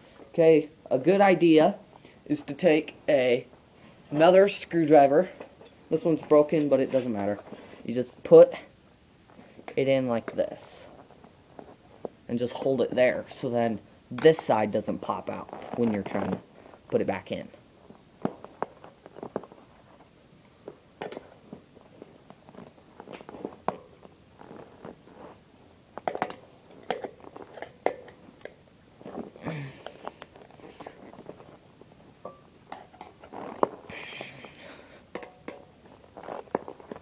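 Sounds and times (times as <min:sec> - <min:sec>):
rubber tire rubbing and scraping: 0:21.1 - 0:25.4, 0:33.2 - 0:33.9, 0:36.0 - 0:37.0.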